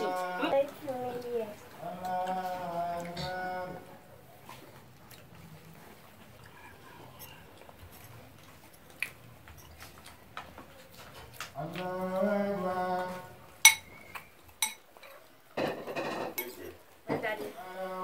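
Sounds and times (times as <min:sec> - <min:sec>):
spoons clinking against plates: 0:13.6 - 0:16.8.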